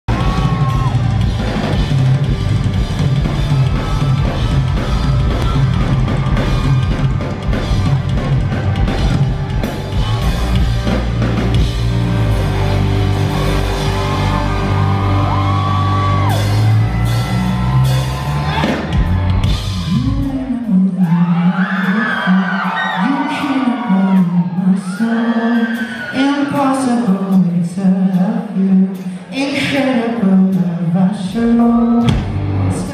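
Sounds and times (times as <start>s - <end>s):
bass guitar: 0.0s - 21.6s, 30.5s - 32.9s
drum kit: 0.0s - 22.2s, 31.4s - 32.9s
electric guitars: 0.1s - 19.9s.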